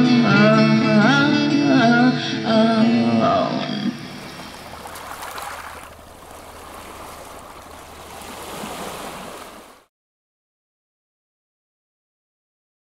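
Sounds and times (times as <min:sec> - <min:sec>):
small waves washing on shore: 0:04.0 - 0:09.9.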